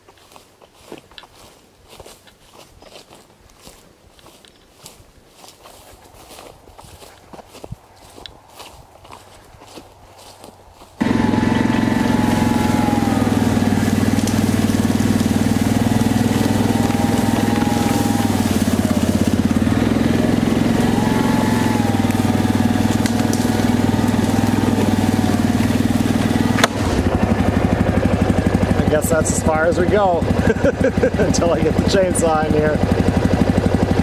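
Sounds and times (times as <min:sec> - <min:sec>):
atv engine running: 0:11.0 - 0:34.0.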